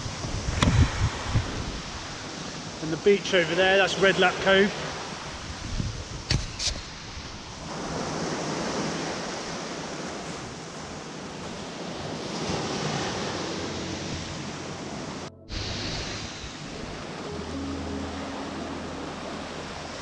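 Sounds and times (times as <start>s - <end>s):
wind buffeting microphone: 0.0s - 2.8s, 5.2s - 17.3s
small waves breaking on shore: 0.0s - 20.0s.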